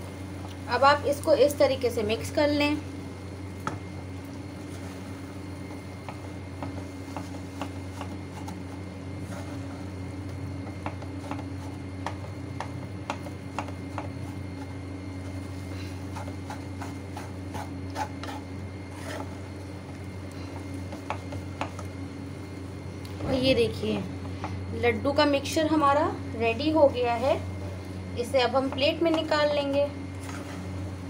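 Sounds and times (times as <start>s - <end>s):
steady low hum: 0.0s - 31.0s
spatula scraping pan: 7.0s - 10.0s, 15.4s - 19.6s, 30.2s - 30.8s.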